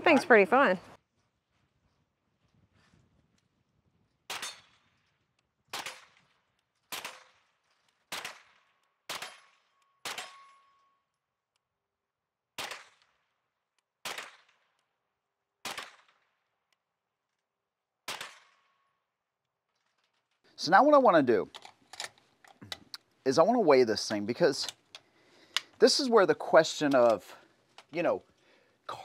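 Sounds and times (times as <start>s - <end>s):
gunshots: 5.7s - 6.2s, 6.9s - 7.4s, 8.1s - 10.4s, 12.6s - 13.0s, 14.0s - 14.6s, 15.6s - 16.2s, 18.1s - 18.6s.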